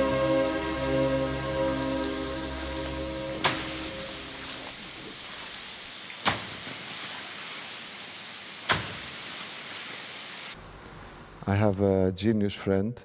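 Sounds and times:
held music chord: 0.0 - 4.7
hiss of artificial rain: 0.0 - 12.2.

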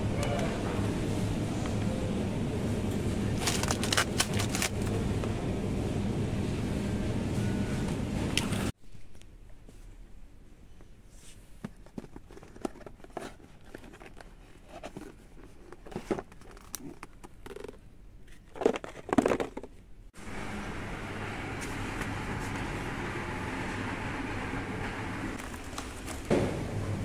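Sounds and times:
packaging rustling and crinkling: 3.4 - 4.8.

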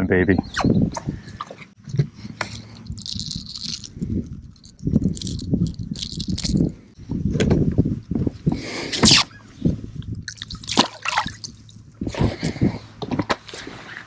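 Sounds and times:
fishing lure hooks rattling: 2.5 - 6.7.

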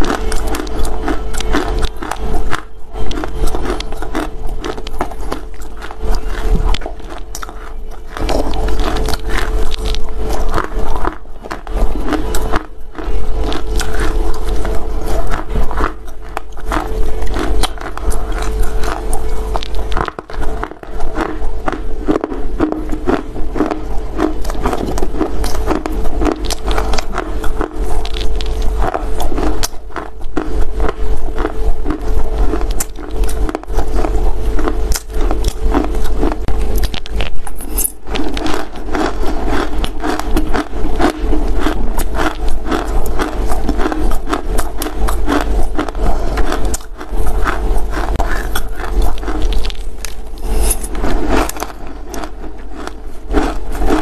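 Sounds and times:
crunchy chewing: 0.0 - 54.0
faint steady hum: 0.0 - 54.0.

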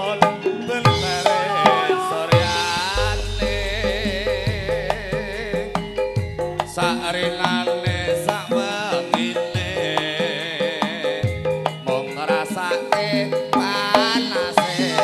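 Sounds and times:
person singing: 0.0 - 15.0
metallophones ringing: 0.4 - 9.8
hand drum strokes: 1.0 - 9.3.

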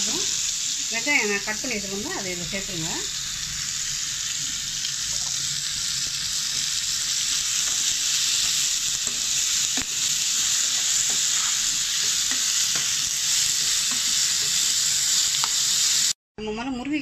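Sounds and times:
vegetables sizzling in oil: 0.0 - 16.2.

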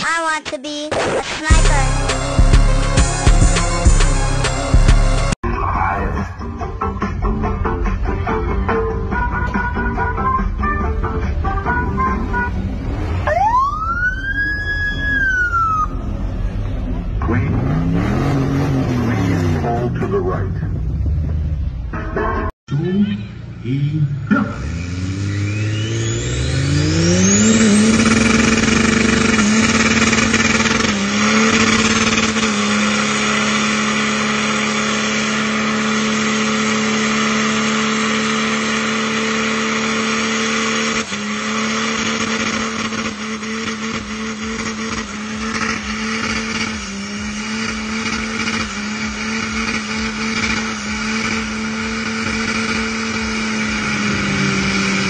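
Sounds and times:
car engine revving: 1.5 - 5.4, 6.5 - 55.0
spinning tyres hissing: 24.6 - 55.0.

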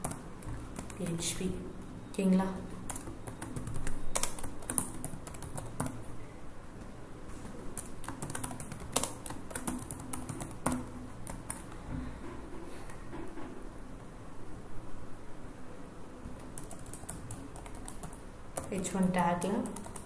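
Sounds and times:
computer keyboard typing: 0.0 - 1.6, 2.2 - 6.1, 7.3 - 11.9, 16.2 - 20.0.

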